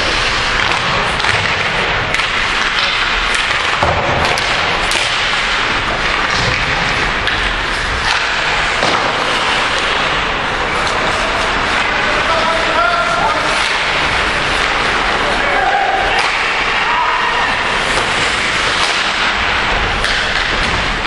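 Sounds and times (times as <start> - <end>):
ice rink din: 0.0 - 21.0
knocks against hockey boards: 0.6 - 10.1, 17.9 - 21.0.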